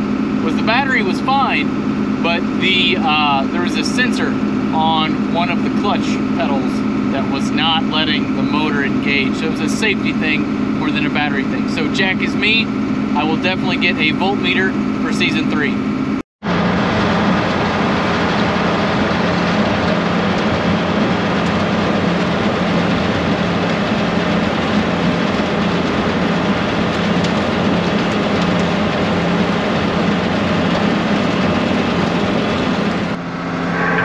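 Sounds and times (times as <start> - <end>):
constant low hum: 0.0 - 34.0.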